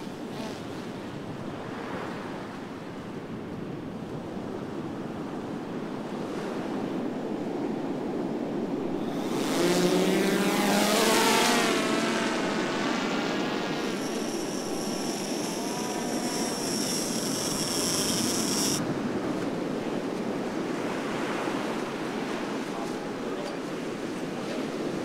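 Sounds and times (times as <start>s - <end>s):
wind: 0.0s - 25.0s
drone propellers whining: 8.9s - 18.8s
high steady whine: 8.9s - 18.8s.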